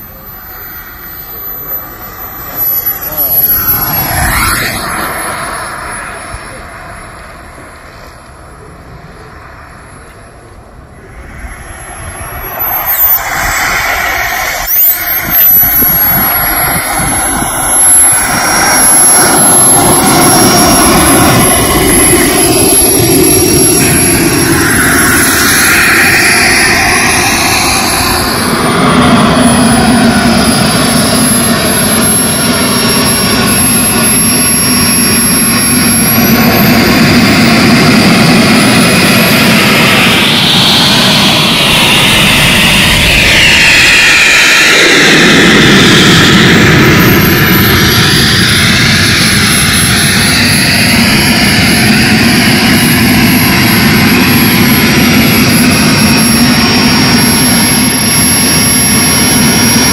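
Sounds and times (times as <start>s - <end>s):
model jet turbine roar and whine: 0.0s - 59.9s.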